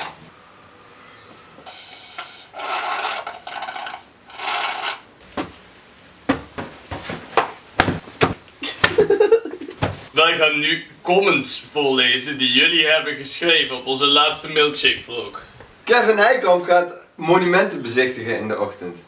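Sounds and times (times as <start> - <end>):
cushions thumping: 5.3 - 5.6, 6.2 - 10.1.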